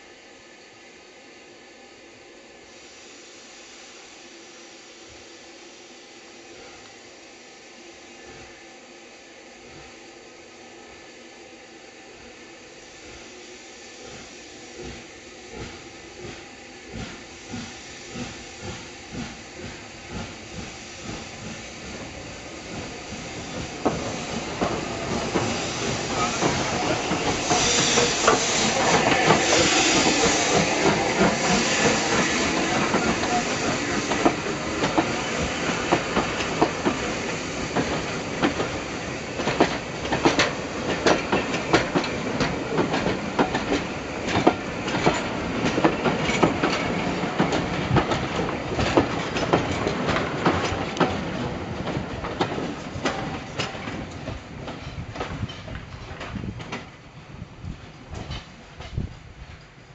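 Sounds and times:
hiss of steam: 0.0s - 59.9s
steam locomotive passing: 0.0s - 59.9s
coaches clicking over rail joints: 39.4s - 57.0s, 57.9s - 59.7s.

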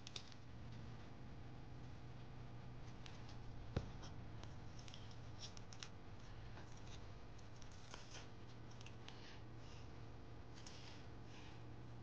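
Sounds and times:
faint low hum: 0.0s - 12.0s
paper crackling and rustling: 2.9s - 9.0s.

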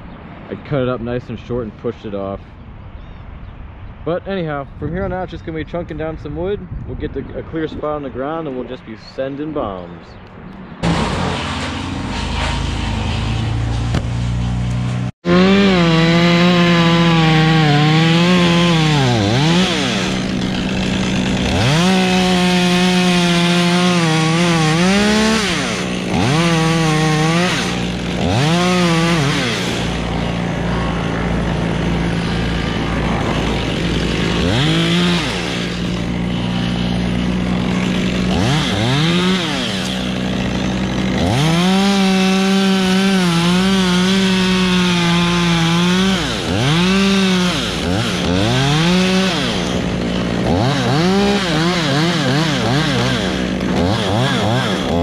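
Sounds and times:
chainsaw cutting wood: 10.8s - 55.0s.

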